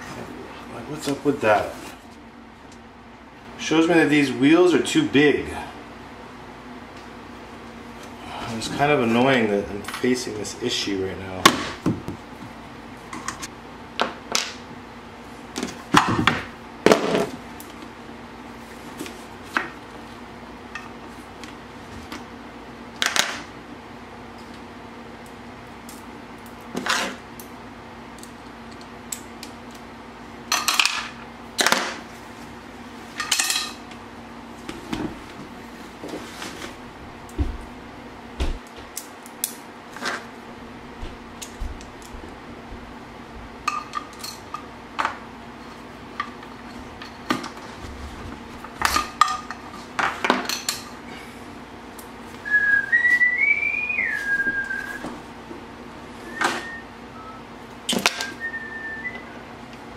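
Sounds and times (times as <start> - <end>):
steady low hum: 0.0 - 59.9
whistle rising and falling: 52.4 - 55.1, 56.2 - 57.4, 58.2 - 59.4.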